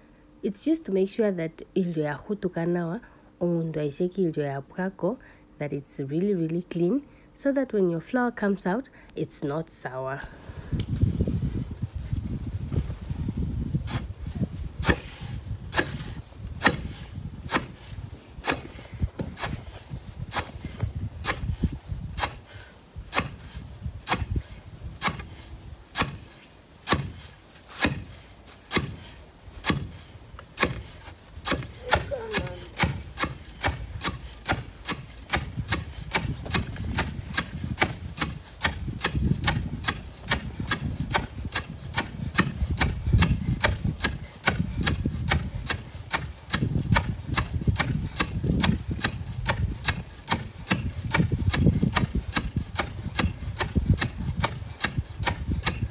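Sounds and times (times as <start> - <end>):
pestles pounding in wooden mortar: 14.8 - 17.8, 18.4 - 19.6, 23.1 - 24.4, 25.0 - 55.9.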